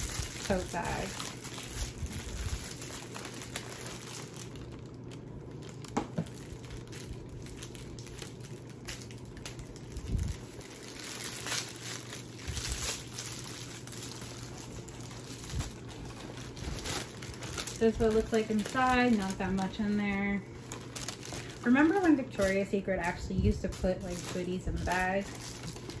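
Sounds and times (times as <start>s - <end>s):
packaging crinkling and rustling: 0.0s - 26.0s.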